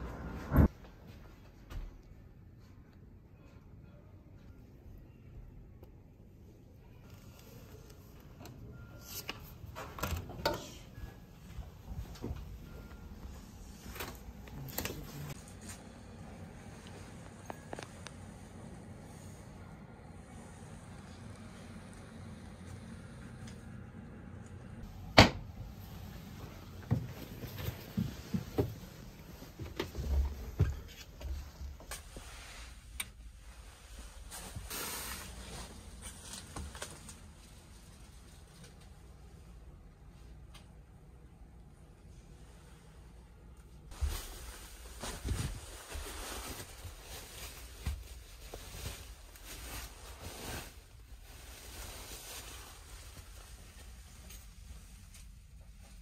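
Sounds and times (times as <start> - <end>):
steady low hum: 10.4 - 56.0
cloth rustling: 43.9 - 55.0.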